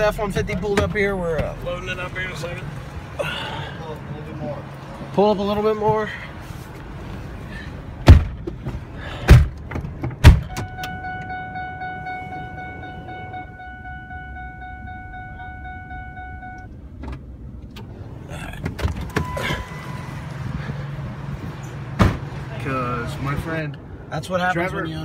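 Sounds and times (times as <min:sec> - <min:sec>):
heavy thumps: 0:08.0 - 0:10.8, 0:21.4 - 0:22.4
vehicle electronic warning tone: 0:10.4 - 0:16.8, 0:19.0 - 0:20.6
short high beep: 0:10.5 - 0:16.7, 0:19.1 - 0:20.2.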